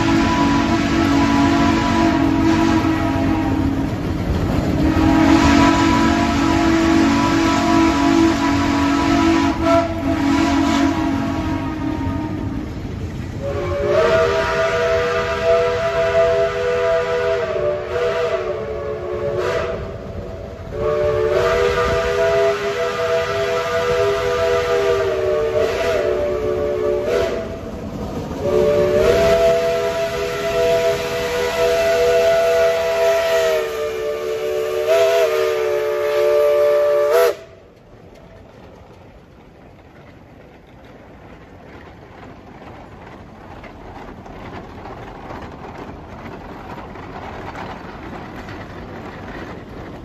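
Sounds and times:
steam locomotive whistle: 0.0s - 4.0s, 4.7s - 12.8s, 13.4s - 27.7s, 28.4s - 37.7s
low rumble of locomotive: 0.0s - 50.0s.

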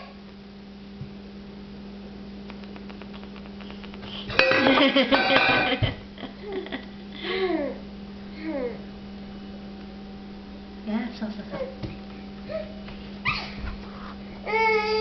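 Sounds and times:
steady low hum: 0.0s - 15.0s
toy dishes and pots clattering: 4.4s - 5.8s.

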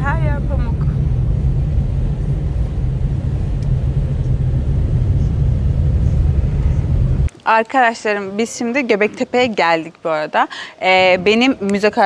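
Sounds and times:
car road and engine rumble: 0.0s - 7.3s.

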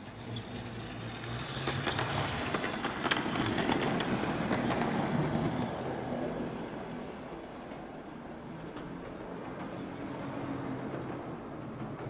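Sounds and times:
model train motor hum: 0.0s - 5.7s
wheels clicking on track: 0.0s - 12.0s.

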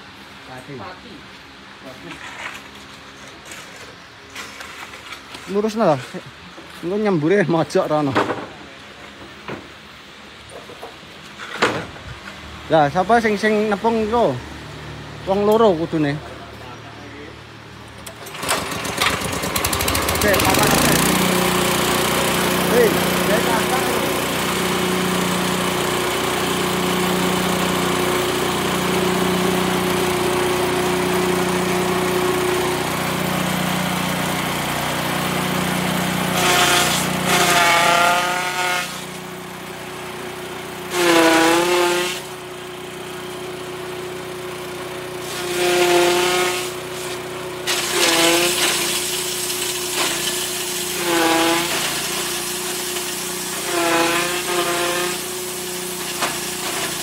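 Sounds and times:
petrol engine running: 17.8s - 41.0s
chaff cutter chopping grass: 18.1s - 57.0s.

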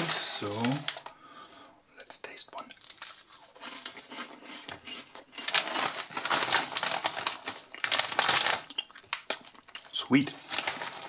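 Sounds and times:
snack bag crinkling: 0.0s - 1.6s, 2.6s - 11.0s
crunchy snack chewing: 2.7s - 11.0s.

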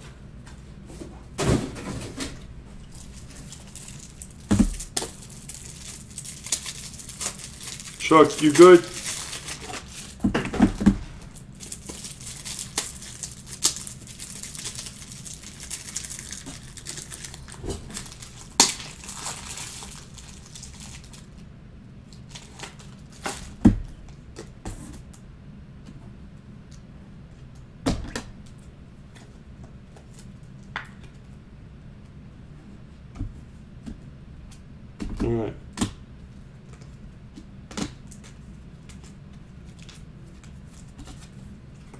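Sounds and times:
wrappers tearing and crinkling: 2.8s - 10.3s, 11.3s - 21.4s, 22.2s - 23.6s.

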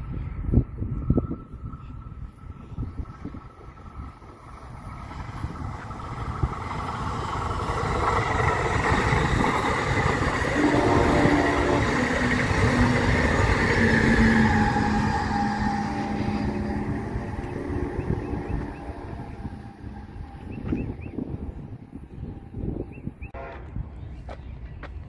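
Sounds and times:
train wheels rumbling on rails: 0.0s - 25.0s
droning tone dropping in pitch: 9.6s - 21.8s.

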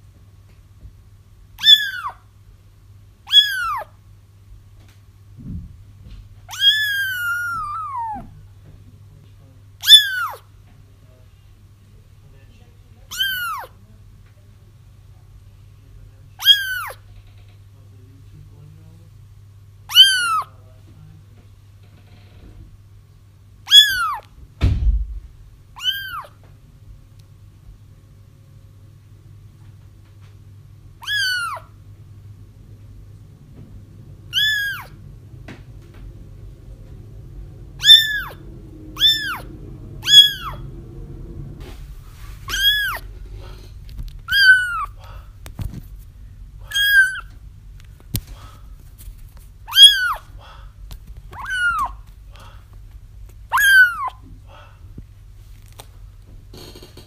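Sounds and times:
faint low hum: 0.0s - 57.0s
kitten meowing loudly: 1.6s - 2.2s, 3.3s - 3.9s, 6.5s - 8.3s, 9.8s - 10.4s, 13.1s - 13.7s, 16.4s - 17.0s, 19.9s - 20.5s, 23.7s - 24.3s, 25.8s - 26.4s, 31.0s - 31.7s, 34.3s - 35.0s, 37.8s - 38.4s, 39.0s - 40.7s, 42.5s - 43.1s, 44.3s - 45.0s, 46.6s - 47.3s, 49.7s - 50.3s, 51.3s - 52.0s, 53.5s - 54.2s
dull thump: 5.4s - 6.3s, 24.6s - 25.4s.

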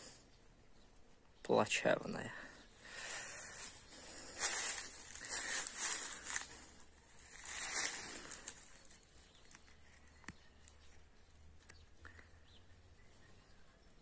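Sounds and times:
footsteps crunching dry leaves: 2.9s - 9.7s.

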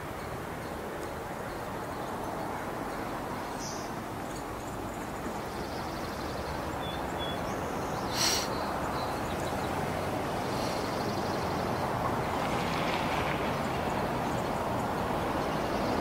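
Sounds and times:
outdoor background rush: 0.0s - 16.0s
brief hiss: 8.1s - 8.6s.

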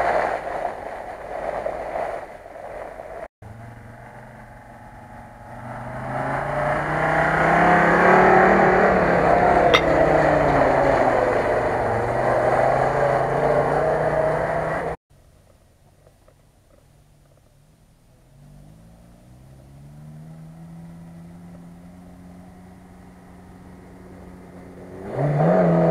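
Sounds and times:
off-road vehicle engine pulling hard: 0.0s - 25.9s
sharp click: 9.7s - 10.1s.

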